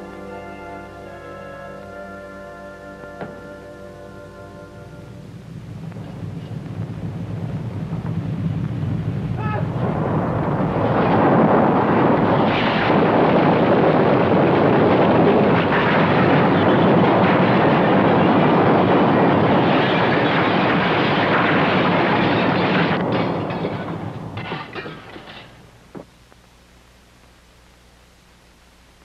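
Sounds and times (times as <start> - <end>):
earthquake rumble: 5.3 - 26.0.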